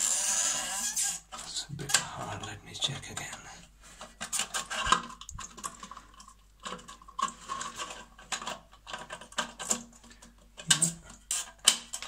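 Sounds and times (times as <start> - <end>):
plastic valve clicking and scraping: 3.0 - 12.0.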